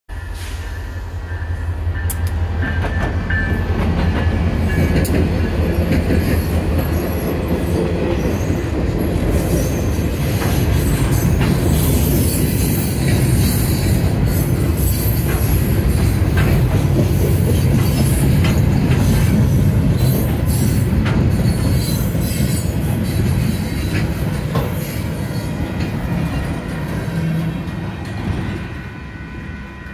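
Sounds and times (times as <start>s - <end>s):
diesel locomotive engine hum: 0.1s - 29.9s
steel wheels rumbling on rails: 0.1s - 29.9s
wheels clicking over rail joints: 14.8s - 25.0s.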